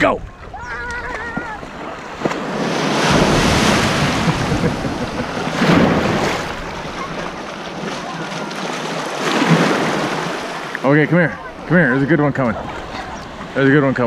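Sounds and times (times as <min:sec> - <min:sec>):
wind rumbling on microphone: 0:00.0 - 0:07.3
small waves breaking: 0:00.3 - 0:14.0.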